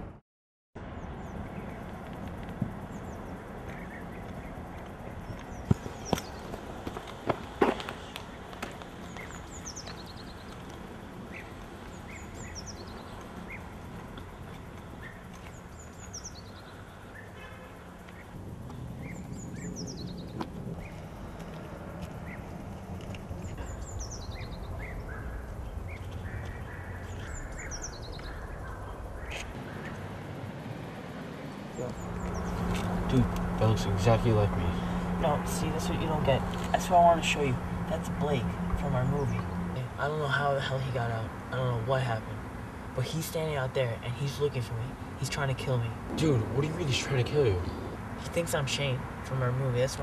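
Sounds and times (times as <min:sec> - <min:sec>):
steady low rumble: 0:00.8 - 0:43.0, 0:44.7 - 0:50.0
outdoor background noise: 0:00.8 - 0:50.0
bird singing: 0:00.9 - 0:50.0
footsteps: 0:03.6 - 0:10.8, 0:20.3 - 0:23.7.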